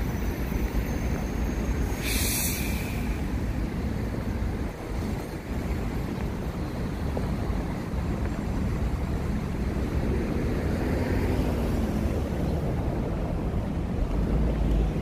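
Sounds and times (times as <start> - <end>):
low rumble of road traffic: 0.0 - 15.0.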